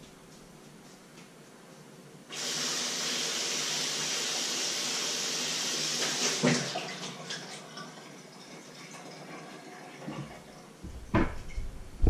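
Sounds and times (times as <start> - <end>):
tap water running: 2.3 - 11.3
knock: 10.8 - 11.7.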